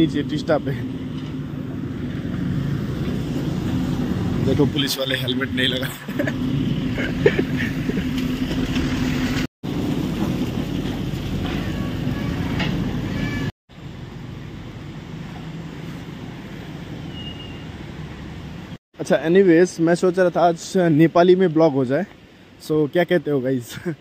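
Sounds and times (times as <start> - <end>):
vehicle engine running: 0.0 - 11.6.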